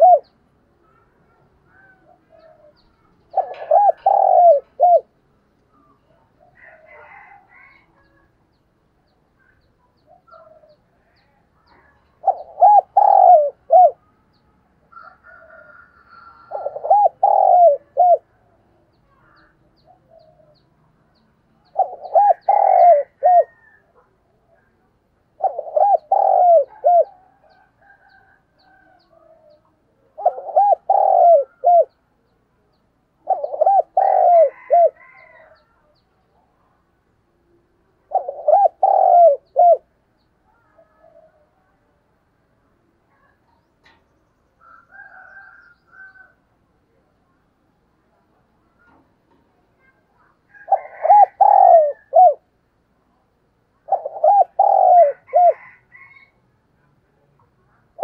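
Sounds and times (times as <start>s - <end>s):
dove cooing: 0.0s - 8.3s, 9.4s - 14.1s, 14.9s - 18.6s, 19.2s - 32.0s, 33.2s - 35.6s, 38.0s - 40.0s, 49.8s - 52.5s, 53.8s - 56.4s
faint bird chirps: 0.0s - 42.0s.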